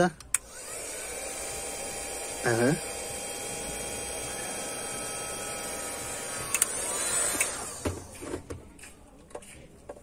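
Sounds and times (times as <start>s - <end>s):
heat gun hissing and whining: 0.4s - 8.1s
heat gun handling clicks: 6.5s - 6.8s.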